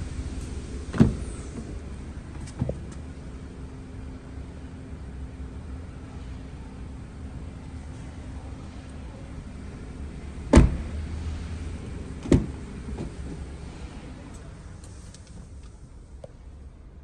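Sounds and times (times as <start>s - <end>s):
car door thumps: 0.9s - 1.8s, 10.5s - 10.9s, 12.2s - 13.4s.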